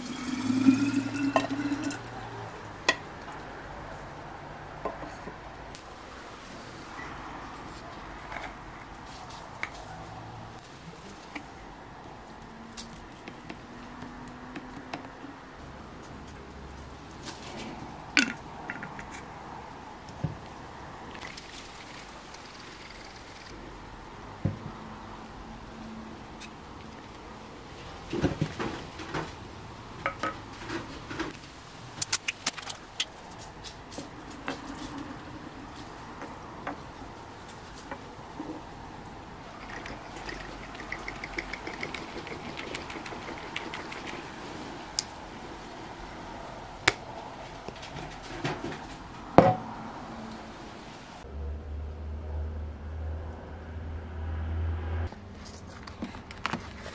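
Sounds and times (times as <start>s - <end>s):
glass bottle clinking: 0.0s - 2.0s
liquid pouring into jar: 0.0s - 2.2s, 39.6s - 44.2s.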